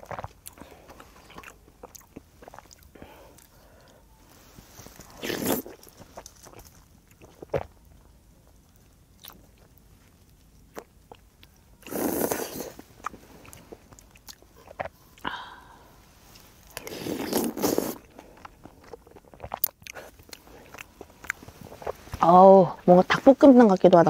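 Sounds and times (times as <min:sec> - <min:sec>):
chewing: 0:00.0 - 0:04.0, 0:04.8 - 0:15.3, 0:16.4 - 0:22.2
noodles being slurped: 0:05.0 - 0:07.7, 0:11.8 - 0:12.8, 0:16.7 - 0:20.8.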